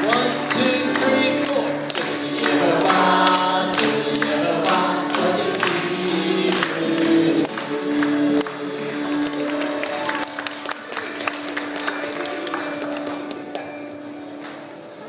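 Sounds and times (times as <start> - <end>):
voices singing worship song: 0.0 - 9.4.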